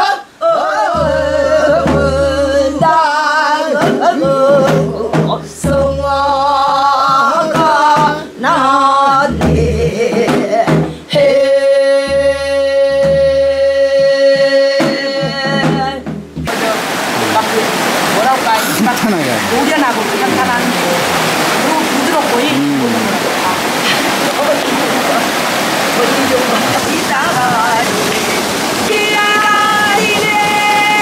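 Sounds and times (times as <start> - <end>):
women singing folk song: 0.0 - 31.0
rushing stream water: 16.3 - 31.0.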